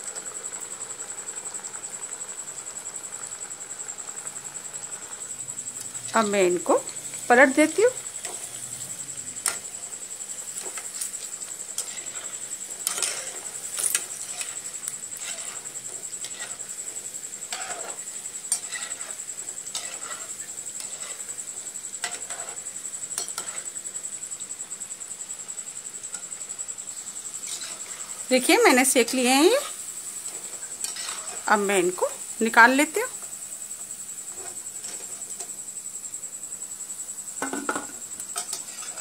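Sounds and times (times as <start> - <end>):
oil bubbling and sizzling: 0.0 - 39.0
steel spoon scraping pan: 6.0 - 8.8, 10.5 - 21.4, 22.0 - 22.6, 23.2 - 23.7, 27.3 - 32.0, 37.8 - 39.0.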